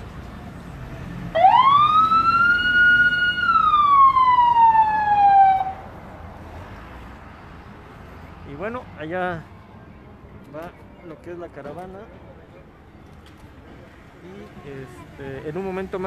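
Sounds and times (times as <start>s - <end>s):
ambulance siren wailing: 1.3s - 5.9s.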